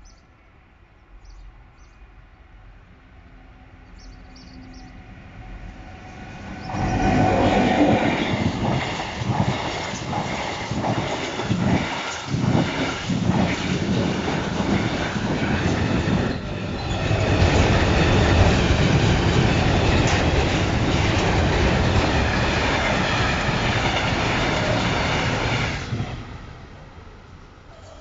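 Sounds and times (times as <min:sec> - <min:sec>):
train wheels rumbling on rails: 0:05.4 - 0:27.1.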